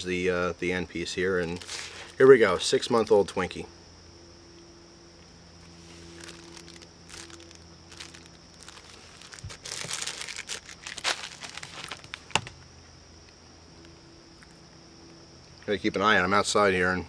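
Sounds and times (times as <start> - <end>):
plastic wrapper crinkling: 5.6 - 12.6.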